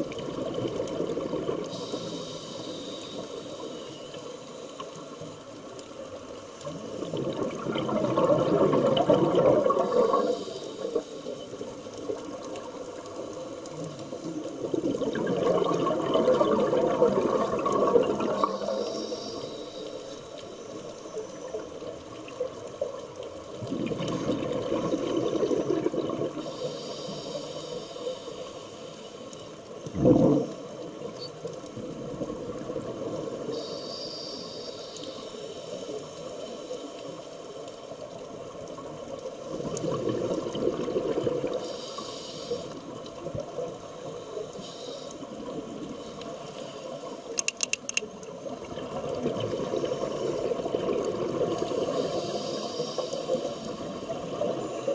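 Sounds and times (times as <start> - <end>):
bubbling exhalations: 7.1 - 10.3, 14.7 - 18.4, 29.9 - 30.5.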